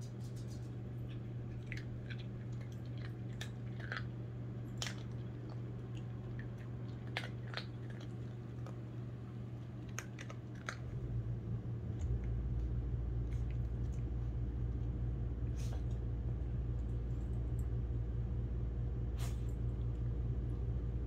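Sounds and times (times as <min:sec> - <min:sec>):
dog crunching dry kibble: 0:00.0 - 0:11.0
steady low hum: 0:00.0 - 0:21.0.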